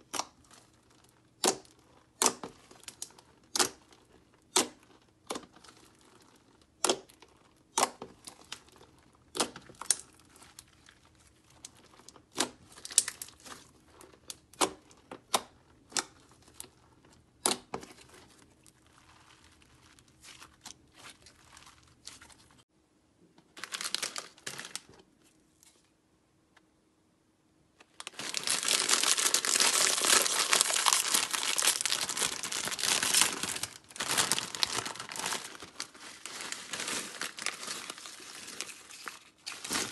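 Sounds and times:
foil chip bag crinkling: 18.0 - 22.6, 23.6 - 25.0, 27.9 - 39.9.

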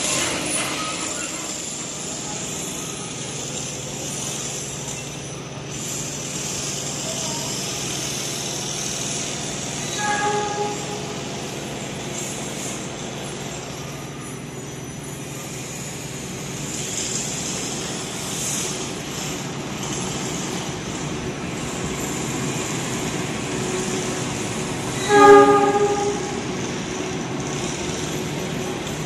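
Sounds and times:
freight train rumbling: 0.0 - 29.0
train horn blast: 9.9 - 11.7, 24.9 - 26.7.

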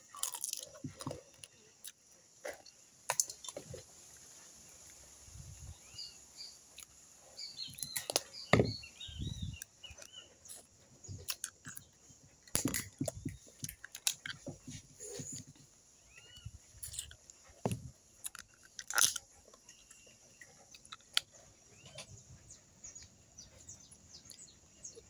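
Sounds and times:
crab shells cracking: 0.0 - 2.0, 7.7 - 8.4, 12.5 - 14.4, 18.2 - 19.7
chewing and handling noises: 0.0 - 5.9, 6.7 - 25.0
small birds chirping: 0.0 - 25.0.

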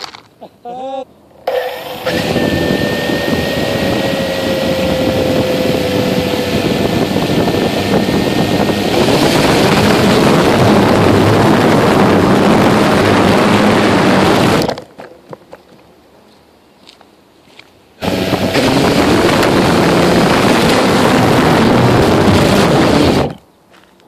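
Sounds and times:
quadcopter motors and propellers: 1.4 - 14.8, 18.0 - 23.4.

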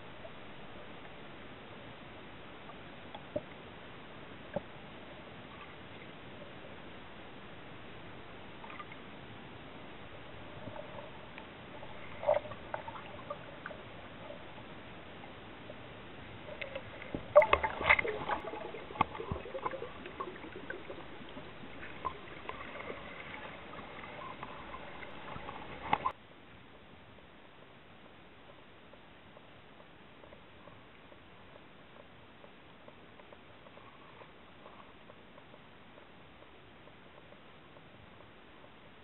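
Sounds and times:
crackles: 0.0 - 39.0
underwater clicks and knocks: 16.5 - 26.2.

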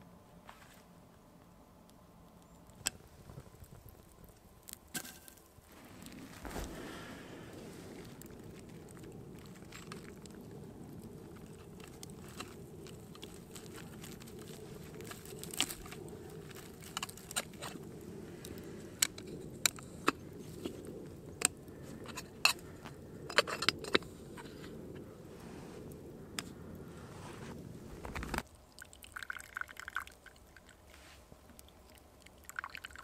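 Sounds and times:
campfire crackling and popping: 1.8 - 30.9, 31.5 - 33.0
kettle boiling: 2.8 - 26.6, 27.3 - 30.9, 31.7 - 33.0
steady low rumble: 5.5 - 28.4.

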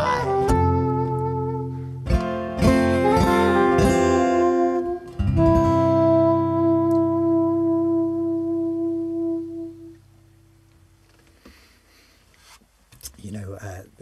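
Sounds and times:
acoustic guitar strums: 2.0 - 6.1.

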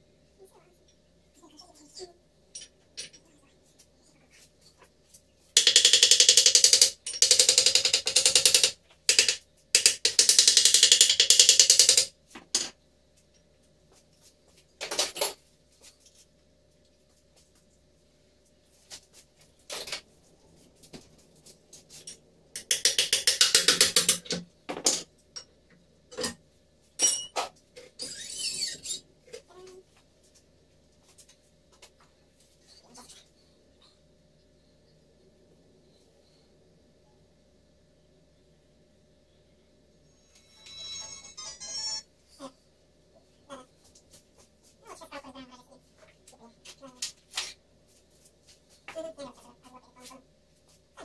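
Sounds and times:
pneumatic wrench hammering: 22.6 - 24.4.

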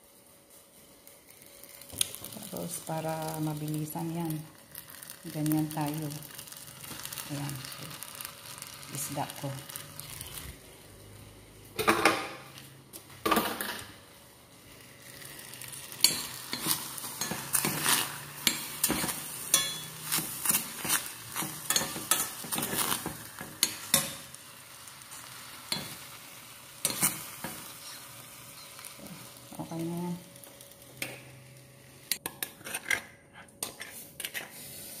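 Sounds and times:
low sizzle: 0.0 - 35.0
metal utensil scraping saucepan: 32.2 - 34.9.

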